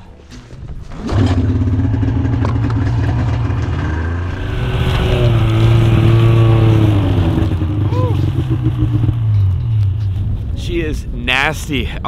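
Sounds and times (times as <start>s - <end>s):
snowmobile engine running: 0.9s - 11.1s.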